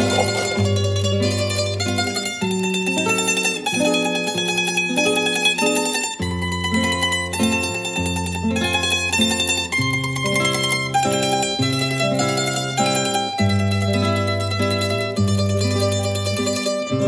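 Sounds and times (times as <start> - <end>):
sustained bass notes: 0.0 - 2.1
plucked-string melody: 0.0 - 17.0.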